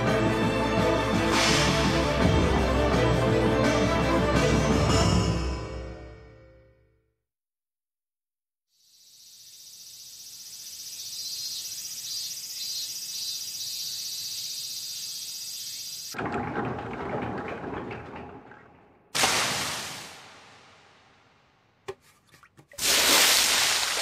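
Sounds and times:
cicadas droning: 8.7 - 16.2.

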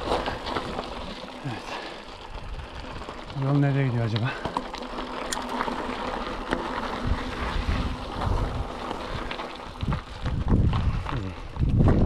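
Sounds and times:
bike rattling: 0.0 - 12.0
tyres crunching on loose stones: 0.0 - 12.0
wind buffeting microphone: 6.8 - 12.0.

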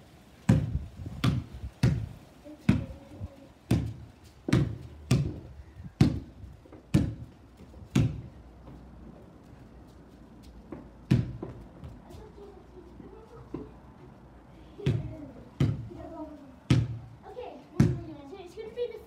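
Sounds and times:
basketball bouncing on hard ground: 0.5 - 9.2, 10.4 - 12.3, 14.8 - 18.2.

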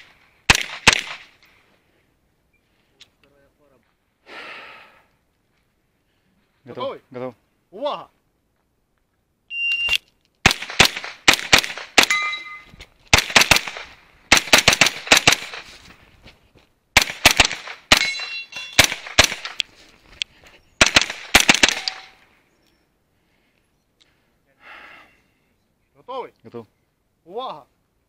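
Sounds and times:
gunshots: 0.0 - 1.4, 10.4 - 15.7, 17.0 - 19.6, 20.8 - 22.2
shot timer beep: 9.5 - 10.1
steel targets ringing: 12.1 - 12.7, 18.0 - 18.8, 21.7 - 22.3.

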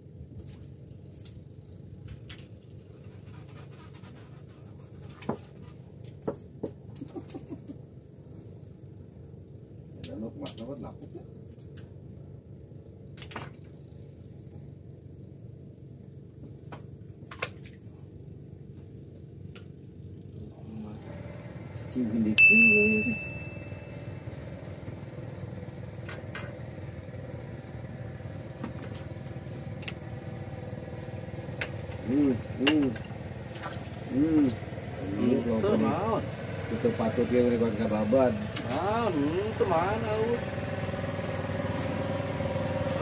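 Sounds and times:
low engine hum: 0.0 - 43.0
bright ding: 22.4 - 24.0.

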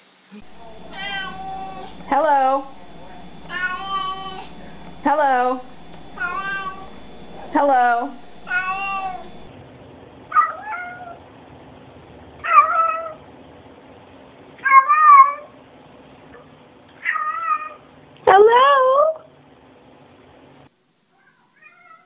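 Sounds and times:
cat meowing: 0.9 - 2.0, 3.5 - 4.5, 6.2 - 6.9, 8.5 - 9.3, 10.3 - 11.2, 12.4 - 13.2, 14.6 - 15.5, 17.0 - 17.8, 21.6 - 22.0.

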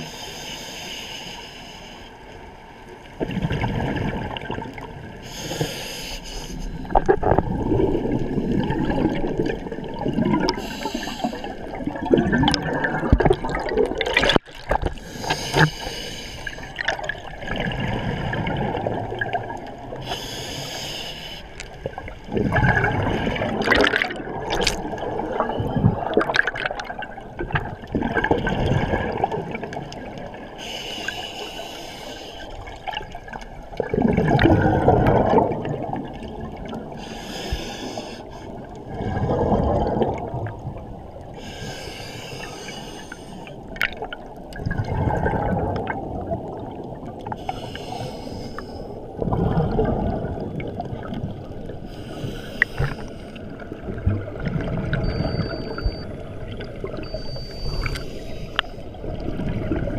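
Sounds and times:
diver breathing through regulator: 0.0 - 2.1, 5.2 - 7.1, 10.5 - 11.8, 14.9 - 16.8, 20.0 - 21.6, 30.6 - 32.6, 37.0 - 39.4, 41.3 - 43.6, 47.3 - 49.1, 51.9 - 53.6, 57.3 - 58.9
bubbling exhalations: 6.8 - 15.7, 22.3 - 27.0.

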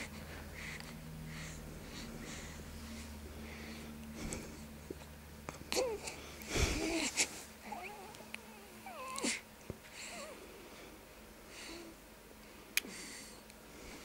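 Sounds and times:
infant cooing: 5.7 - 6.1, 6.8 - 9.4.

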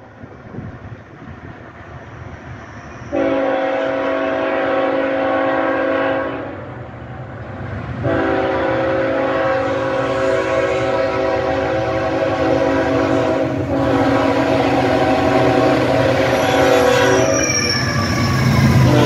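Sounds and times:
train rumble: 0.0 - 19.0
locomotive air horn blasts: 3.1 - 6.7, 8.0 - 17.6, 18.8 - 19.0.

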